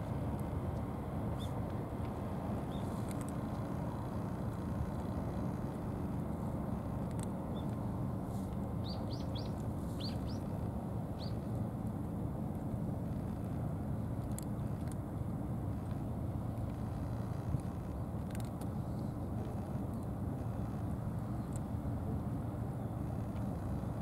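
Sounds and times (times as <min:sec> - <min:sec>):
low outdoor rumble: 0:00.0 - 0:24.0
small bird chirping: 0:02.7 - 0:03.0, 0:08.8 - 0:10.5, 0:11.2 - 0:11.4.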